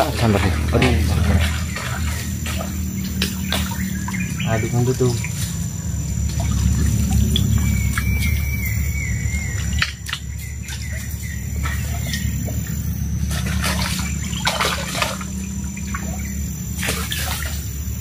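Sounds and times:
birds chirping: 0.0 - 18.0
stream water rushing: 0.0 - 18.0.

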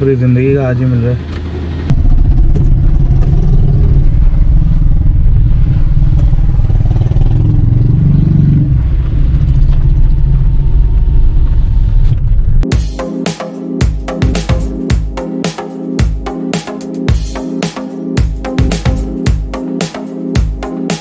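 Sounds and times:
car engine rumble: 0.0 - 12.6
tyres on dirt road: 0.0 - 12.6.

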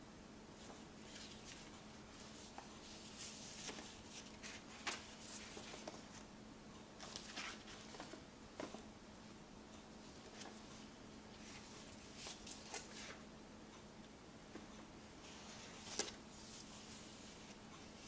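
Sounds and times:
paper pages rustling and crinkling: 0.6 - 6.3, 7.0 - 8.8, 10.1 - 10.6, 11.4 - 13.2, 15.3 - 17.6.

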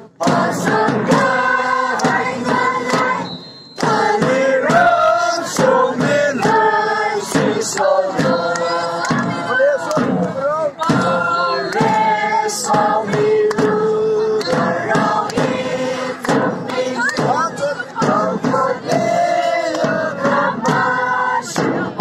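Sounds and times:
crowd singing and chanting: 0.0 - 22.0.

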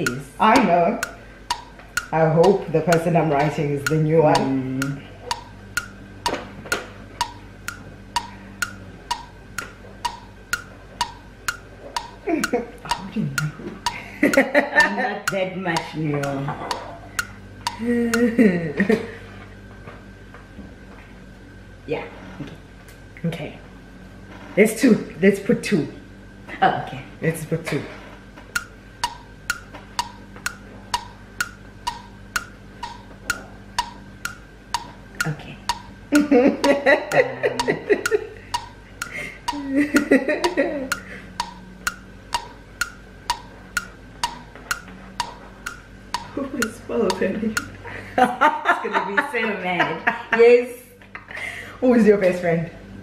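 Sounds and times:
clock ticking: 0.0 - 18.9, 28.0 - 50.2.

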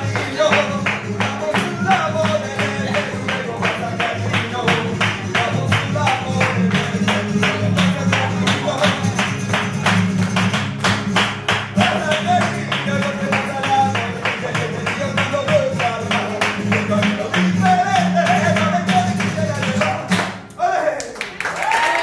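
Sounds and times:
person singing: 0.0 - 9.9
flamenco music: 0.0 - 22.0.

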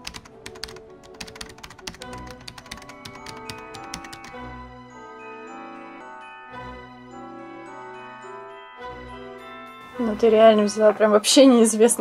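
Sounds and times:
rapid clicking: 0.0 - 4.4
background music with held notes: 0.0 - 12.0.

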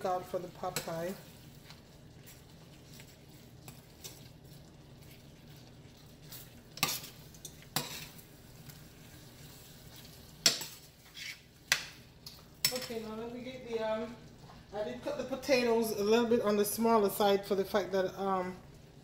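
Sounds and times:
faint sizzle: 0.0 - 19.0
spoon stirring stew: 0.4 - 14.6.

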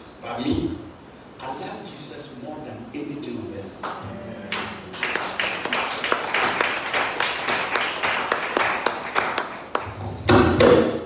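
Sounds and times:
hand clapping: 3.8 - 10.9.

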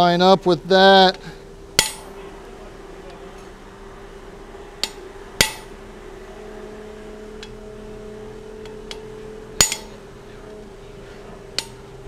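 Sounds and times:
hammer ringing on metal punch: 1.0 - 3.6, 4.8 - 12.0.

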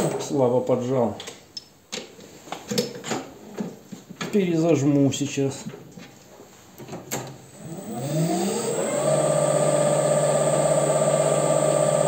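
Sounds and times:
lathe motor whine: 7.6 - 12.0.

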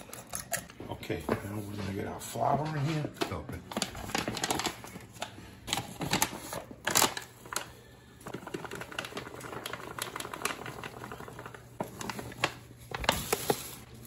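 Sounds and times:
paper bag crinkling: 3.6 - 14.0.

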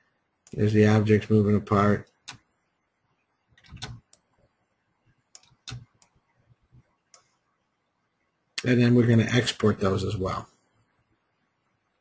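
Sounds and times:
computer mouse clicks: 2.0 - 2.5, 3.5 - 4.5, 5.3 - 6.2, 7.1 - 7.4.

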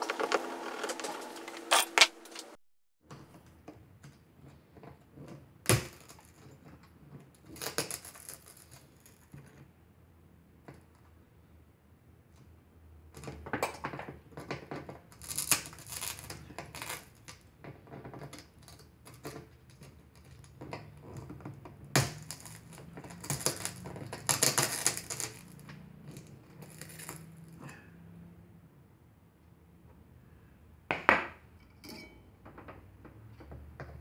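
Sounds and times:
pliers clinking on glass: 31.6 - 32.2.

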